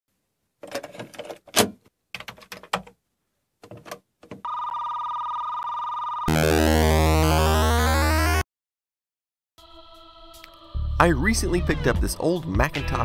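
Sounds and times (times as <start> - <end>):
cassette recorder plastic rattles: 0.6 - 2.9
steady electronic tone: 6.3 - 8.4.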